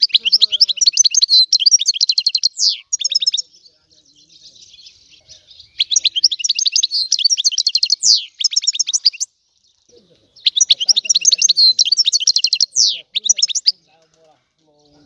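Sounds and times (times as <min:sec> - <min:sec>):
finch singing: 0:00.0 - 0:15.0.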